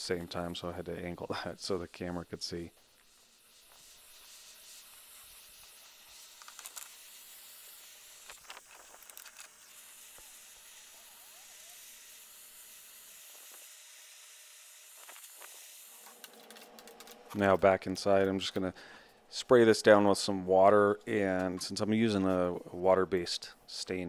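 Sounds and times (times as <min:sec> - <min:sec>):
propane torch hissing: 0:00.0 - 0:17.6.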